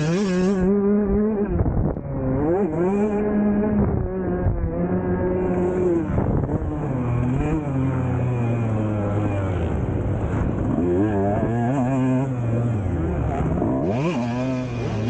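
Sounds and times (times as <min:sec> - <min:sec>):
two-stroke engine revving: 0:00.0 - 0:15.0.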